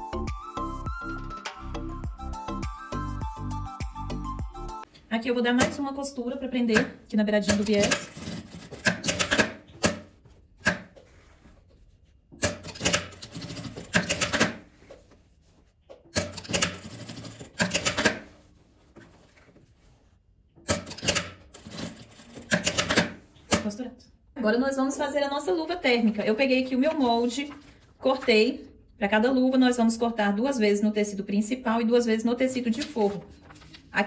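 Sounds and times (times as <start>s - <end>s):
sewing machine stitching: 16.2s - 18.2s.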